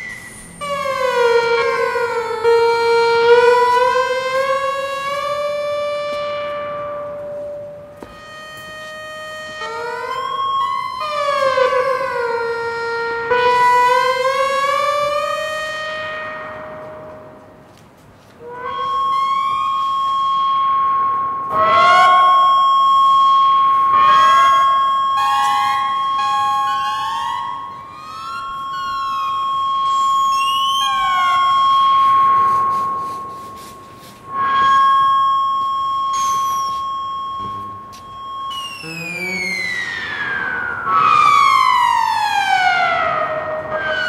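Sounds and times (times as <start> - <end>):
gliding siren-like synth tones: 0.0 - 17.4, 18.5 - 44.0
steady high synthesizer tone: 0.0 - 17.6, 18.4 - 44.0.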